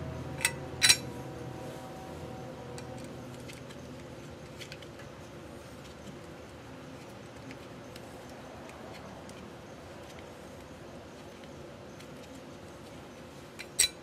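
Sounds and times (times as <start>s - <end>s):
metal clinks: 0.4s - 1.1s.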